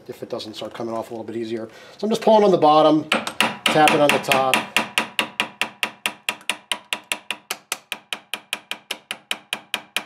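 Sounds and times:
hammer tapping on metal: 0:03.1 - 0:10.0.

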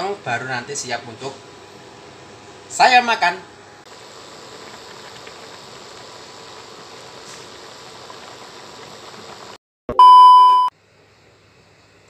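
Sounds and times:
coconut milk bubbling in a wok: 0:03.9 - 0:09.6.

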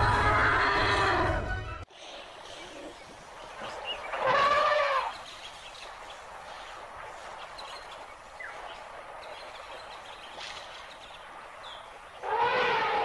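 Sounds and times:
steady outdoor hiss: 0:01.9 - 0:13.0
elephant trumpeting: 0:04.1 - 0:05.2, 0:12.2 - 0:13.0.

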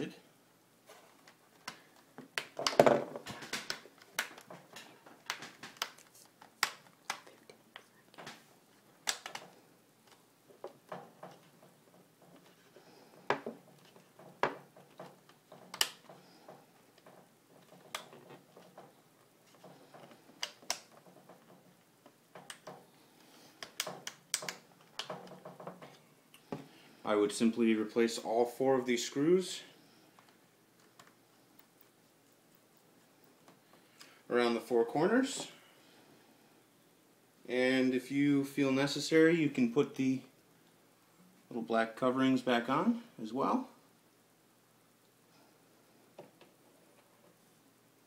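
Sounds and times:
plastic laptop bezel clicking: 0:09.0 - 0:09.5, 0:23.6 - 0:25.4.

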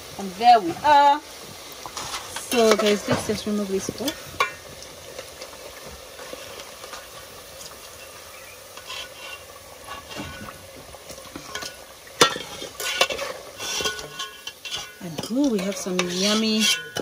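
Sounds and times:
food deep-frying in oil: 0:00.0 - 0:17.0
metal utensil clinking: 0:11.4 - 0:17.0.

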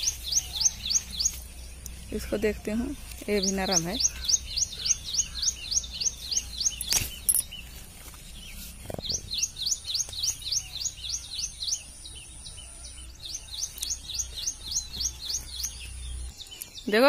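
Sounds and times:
bird chirping: 0:00.0 - 0:17.0.

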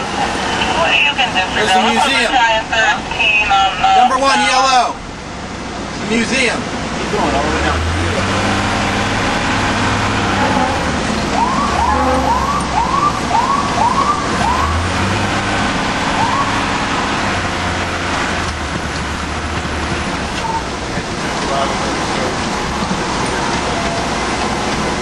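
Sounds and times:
truck engine drone: 0:00.0 - 0:25.0
fire engine siren: 0:07.4 - 0:19.4.

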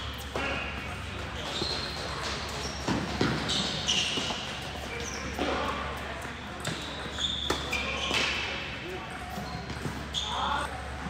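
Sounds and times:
shoe squeaks on court: 0:01.4 - 0:08.6, 0:09.2 - 0:10.7.

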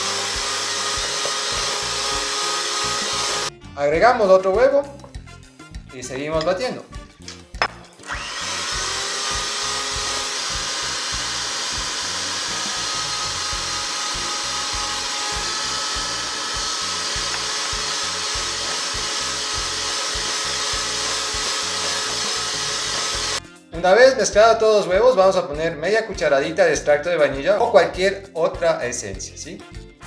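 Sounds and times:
electric hand mixer whining: 0:00.0 - 0:03.5, 0:08.0 - 0:23.4.

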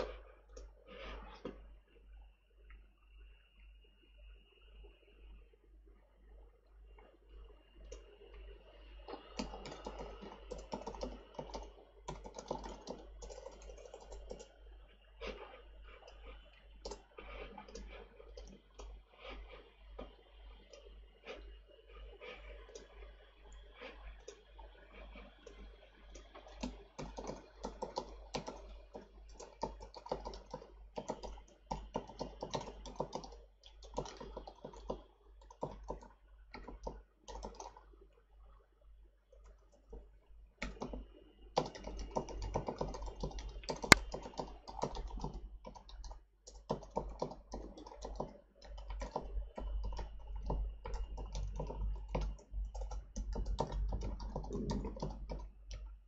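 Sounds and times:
typing on computer keyboard: 0:09.1 - 0:14.6, 0:16.8 - 0:18.9, 0:25.4 - 0:37.8, 0:40.6 - 0:55.9.

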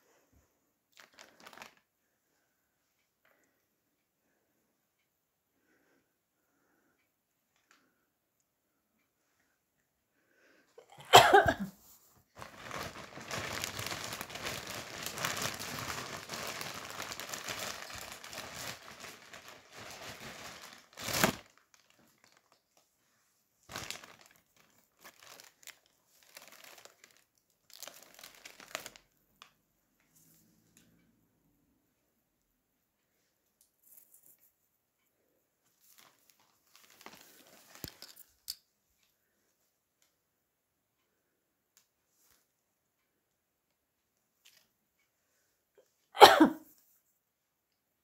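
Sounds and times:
crinkling handling noise: 0:00.9 - 0:01.9, 0:11.3 - 0:30.3, 0:33.6 - 0:34.7, 0:35.6 - 0:40.1, 0:44.4 - 0:44.7.

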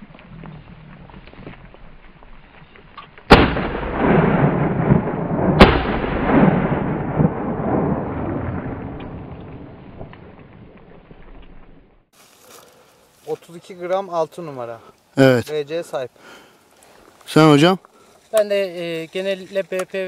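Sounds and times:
shotgun shots with rolling echo: 0:03.3 - 0:10.1.

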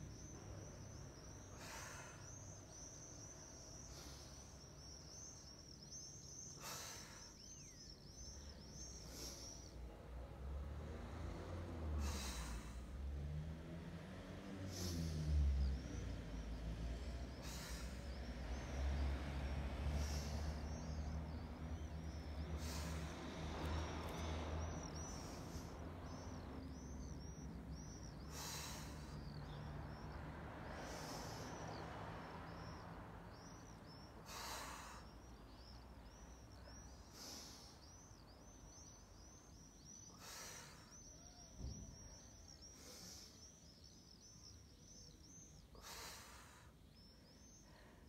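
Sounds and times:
small birds chirping: 0:00.0 - 0:48.0
person breathing forcefully: 0:01.4 - 0:05.4, 0:06.3 - 0:09.8, 0:11.8 - 0:13.1, 0:14.6 - 0:15.7, 0:16.9 - 0:31.9, 0:32.6 - 0:35.8, 0:40.0 - 0:41.1, 0:45.6 - 0:46.9.

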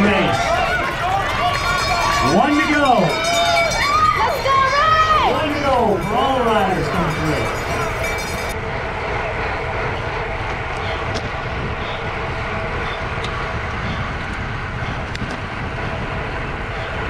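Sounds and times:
wind rushing over microphone: 0:04.1 - 0:17.0.

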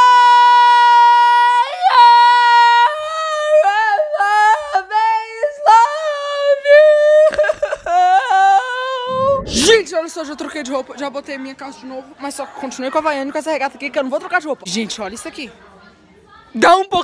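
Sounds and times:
boy singing in falsetto: 0:00.0 - 0:09.8.

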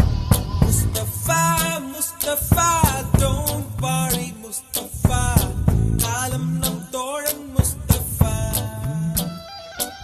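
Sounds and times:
song with drums and held notes: 0:00.0 - 0:10.0.

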